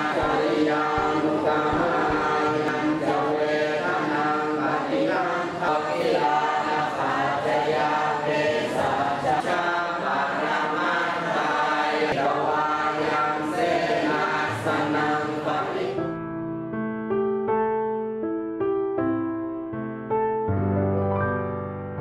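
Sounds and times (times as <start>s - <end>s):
group chanting in unison: 0.0s - 16.0s.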